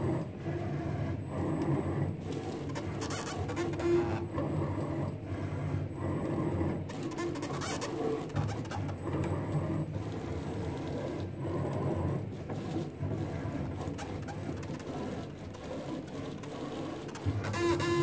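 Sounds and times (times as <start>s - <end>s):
stepper motors buzzing whir: 17.2s - 18.0s.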